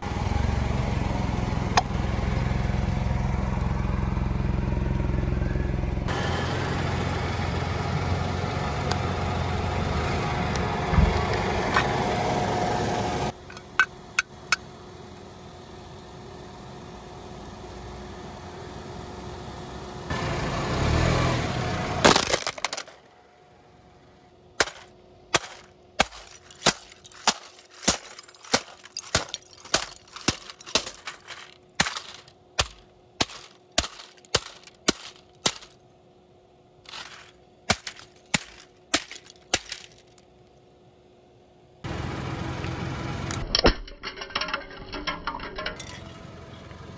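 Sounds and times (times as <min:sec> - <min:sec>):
rushing crunch of toy smashing: 0:22.0 - 0:23.0, 0:24.6 - 0:35.8, 0:36.9 - 0:40.2.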